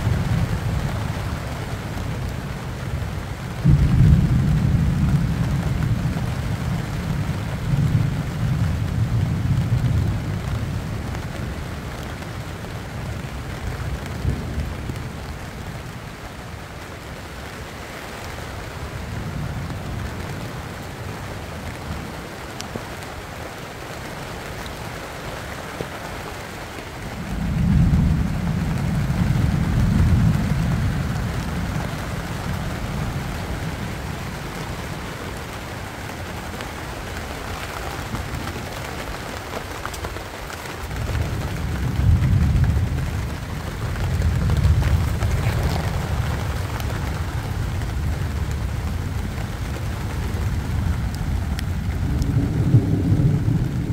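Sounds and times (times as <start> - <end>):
thunder rumbling: 0.0 - 15.9, 27.0 - 53.9
rain falling on leaves: 0.0 - 53.9.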